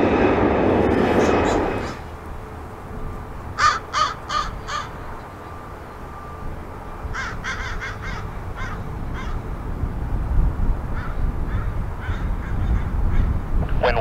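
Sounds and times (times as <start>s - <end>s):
low rumble: 0.0s - 3.6s
bird calling: 3.4s - 9.5s.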